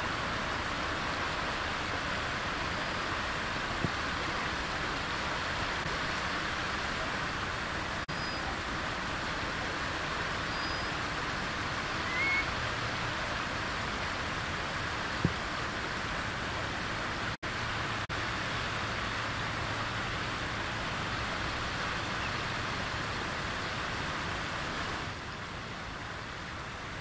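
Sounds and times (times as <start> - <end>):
curlew rising call: 10.4 - 11.0, 11.9 - 12.6.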